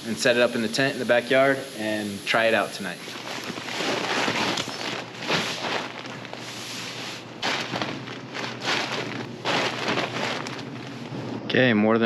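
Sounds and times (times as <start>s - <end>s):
sleeping bags rustling: 2.4s - 11.4s.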